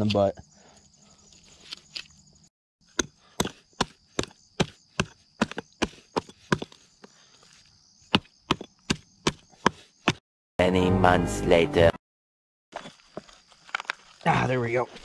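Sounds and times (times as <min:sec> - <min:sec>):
hatchet chopping shell: 0:02.8 - 0:06.8, 0:08.1 - 0:10.2.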